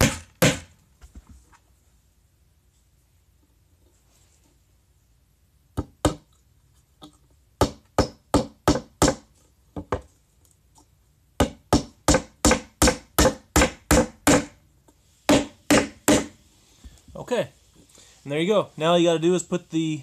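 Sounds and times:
hammer tapping nails into wood: 11.4 - 14.5.

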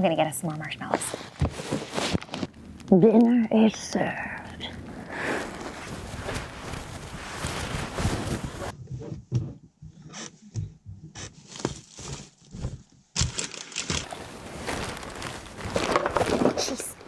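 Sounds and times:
plastic bags crinkling: 4.8 - 8.7, 13.3 - 17.0.

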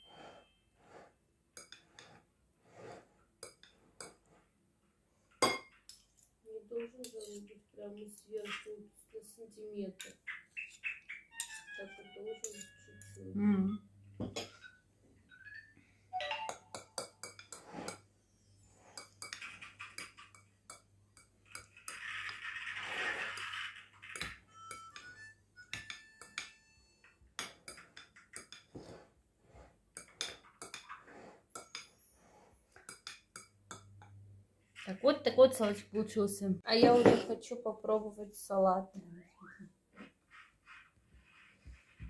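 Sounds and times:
cutlery clinking on ceramic bowl: 5.4 - 6.2, 7.0 - 7.5, 11.4 - 13.2, 16.2 - 18.0, 18.9 - 22.4, 24.1 - 26.6, 27.4 - 28.9, 30.0 - 31.0, 31.6 - 32.0, 32.8 - 34.1.

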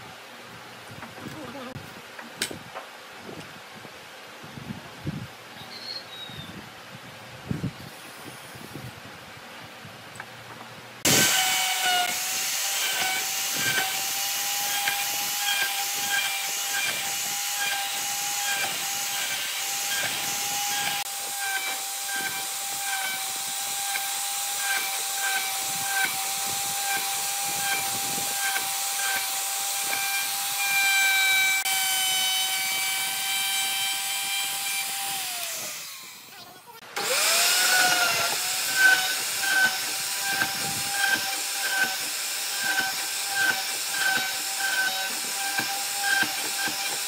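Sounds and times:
power tool motor whining: 11.0 - 47.0.

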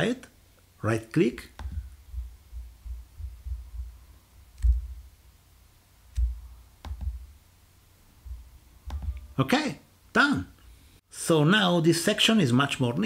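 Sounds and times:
dull low thump: 1.5 - 5.1, 6.2 - 7.4, 8.2 - 9.3
computer mouse clicking: 4.5 - 5.0, 6.1 - 7.3, 8.8 - 9.3.

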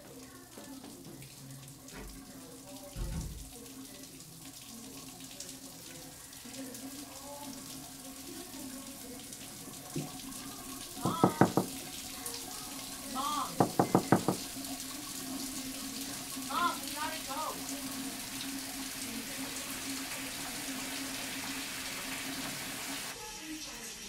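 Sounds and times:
water running from tap: 0.0 - 24.0
sharp knocks: 11.0 - 11.7, 13.6 - 14.5.

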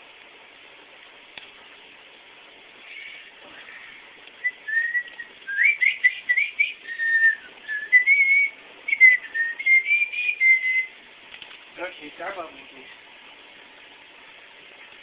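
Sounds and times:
person whistling a tune: 4.4 - 10.9.

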